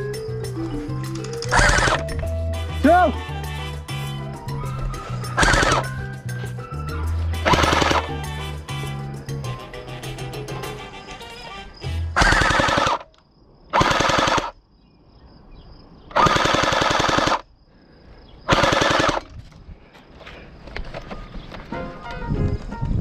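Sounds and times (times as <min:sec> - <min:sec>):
gel blaster firing bursts: 0:01.5 - 0:02.0, 0:05.4 - 0:05.9, 0:07.4 - 0:08.1, 0:12.2 - 0:13.1, 0:13.7 - 0:14.6, 0:16.1 - 0:17.4, 0:18.5 - 0:19.2.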